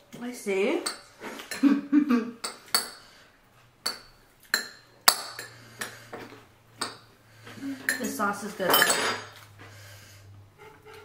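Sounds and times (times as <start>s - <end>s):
cutlery clinking against dishes: 7.7s - 9.4s.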